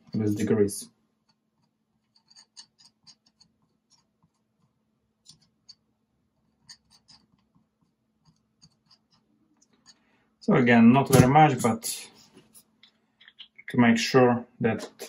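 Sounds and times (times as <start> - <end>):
faint ticks and scrapes of tool: 1.2 - 10.5, 12.1 - 13.5.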